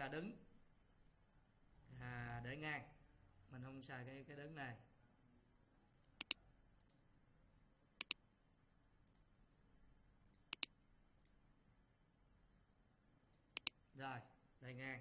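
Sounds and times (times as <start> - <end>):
computer mouse button clicking: 6.0 - 7.0, 8.0 - 8.2, 10.3 - 11.3, 13.2 - 13.8.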